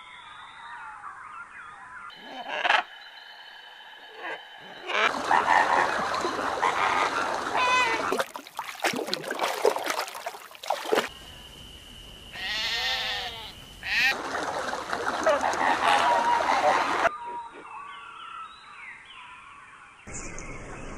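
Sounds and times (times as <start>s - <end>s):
flamingos calling: 2.1s - 3.0s, 4.1s - 8.2s, 12.4s - 14.3s, 15.1s - 17.1s
splashing in shallow water: 5.1s - 11.2s, 13.8s - 17.1s
sheep bleating: 12.4s - 14.2s.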